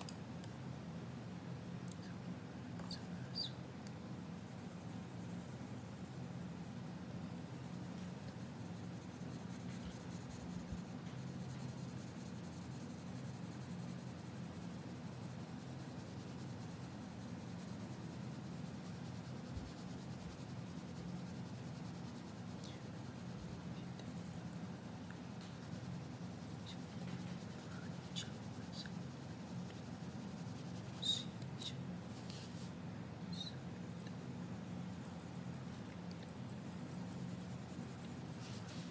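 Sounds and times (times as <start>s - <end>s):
low steady hum: 0.0s - 38.9s
pencil shading on paper: 7.4s - 31.3s, 33.4s - 38.9s.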